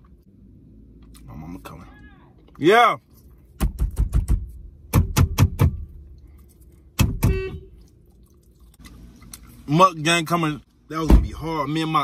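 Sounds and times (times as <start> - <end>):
sharp knocks: 3.6 - 5.9.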